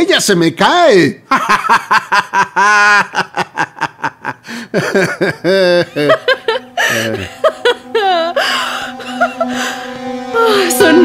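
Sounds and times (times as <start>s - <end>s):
people laughing: 1.3s - 9.8s
soft background music: 3.1s - 11.0s.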